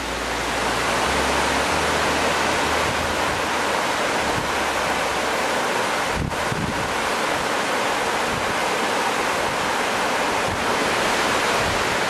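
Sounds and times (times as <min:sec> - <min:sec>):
waterfall rushing onto rock: 0:00.0 - 0:12.0.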